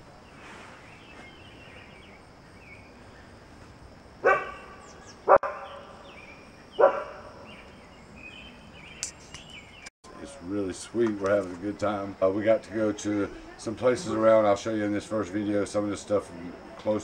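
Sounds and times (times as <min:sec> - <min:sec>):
dog barking: 0:04.2 - 0:05.8, 0:06.8 - 0:07.3.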